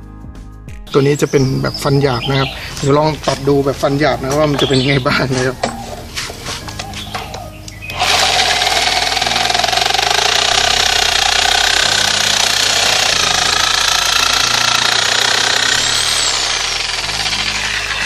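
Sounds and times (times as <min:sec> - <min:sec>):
reciprocating saw cutting bamboo: 0:07.9 - 0:18.0.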